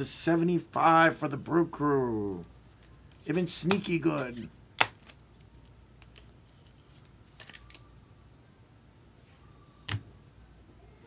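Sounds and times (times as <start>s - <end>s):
cards and packaging rustling: 2.3s - 7.9s.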